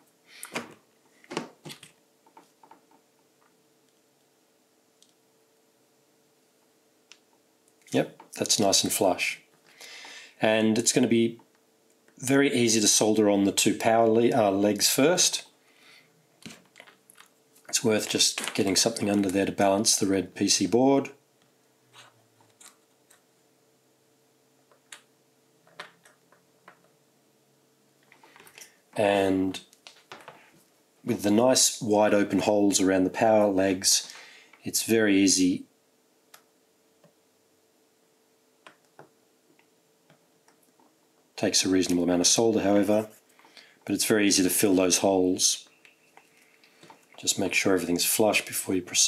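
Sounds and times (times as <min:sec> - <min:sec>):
faint steady hum: 0:00.0 - 0:49.0
small clicks and taps: 0:24.7 - 0:26.9.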